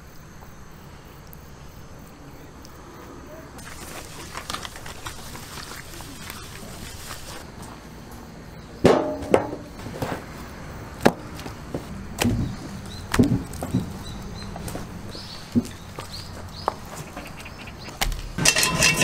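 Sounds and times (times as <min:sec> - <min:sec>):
metallic ring of a pan: 0:18.4 - 0:19.0
steaks slapping into metal pans: 0:18.4 - 0:19.0.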